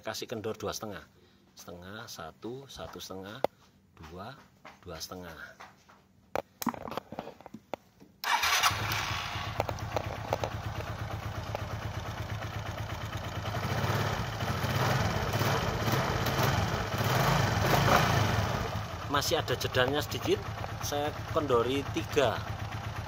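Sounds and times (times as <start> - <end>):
motorcycle engine idling: 8.3 - 23.0.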